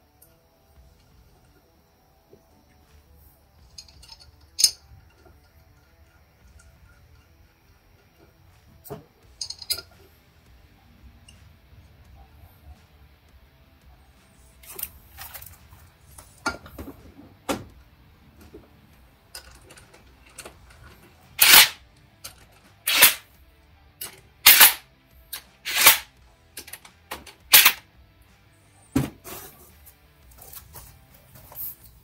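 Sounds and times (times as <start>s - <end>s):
ratchet clicking: 3.7s - 8.2s, 19.3s - 23.3s, 24.0s - 27.8s.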